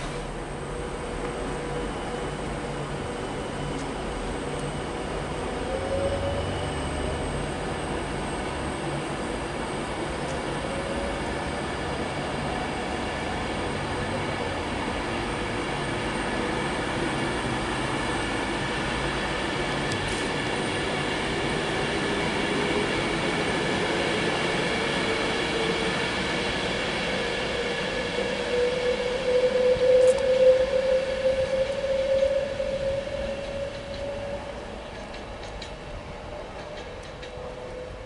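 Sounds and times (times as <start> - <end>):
electric train motors whining: 27.0 - 35.8.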